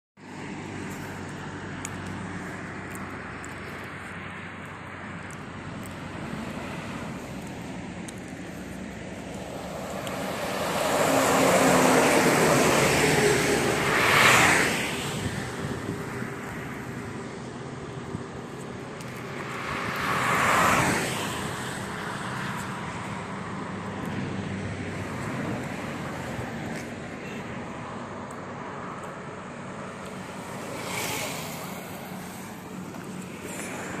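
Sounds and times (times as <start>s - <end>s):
car passing: 0.2s - 34.0s
steady road noise: 0.2s - 34.0s
vehicle passing loudly: 9.1s - 16.1s
motorcycle passing: 9.2s - 16.0s, 30.0s - 34.0s.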